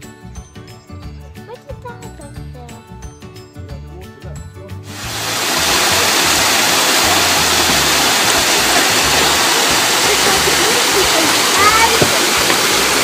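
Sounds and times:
background music: 0.0s - 13.0s
water rushing through lock gate: 4.9s - 13.0s.

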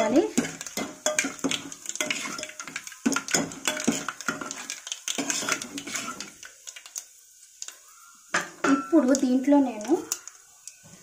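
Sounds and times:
faint sizzle: 0.0s - 11.0s
metal ladle scraping pot: 0.4s - 6.4s.

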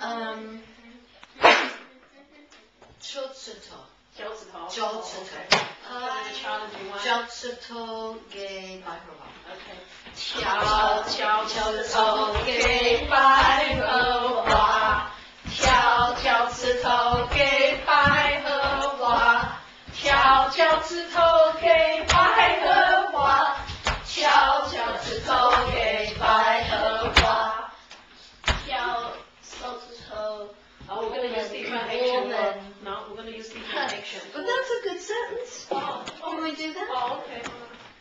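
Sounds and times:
children and adults singing: 10.2s - 27.9s.

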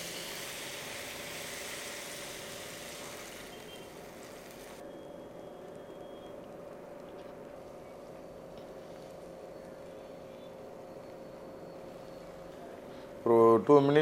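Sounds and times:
food sizzling in a wok: 0.0s - 4.8s
kitchen hum: 0.0s - 13.2s.

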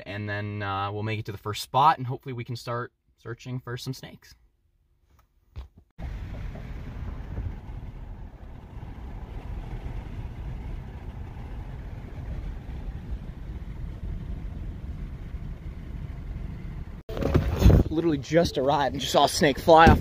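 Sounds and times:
engine and tyre noise: 6.0s - 20.0s.

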